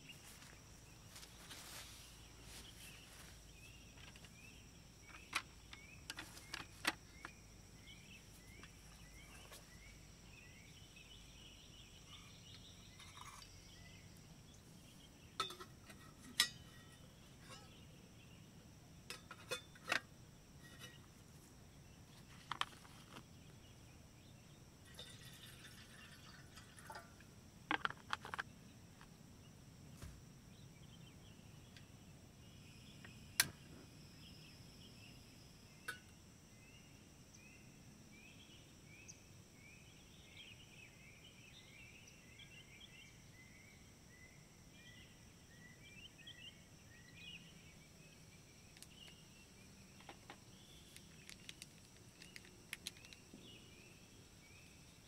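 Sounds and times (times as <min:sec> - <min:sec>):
insects chirping: 0:00.0 - 0:55.0
metal cookware clinking: 0:15.4 - 0:17.8.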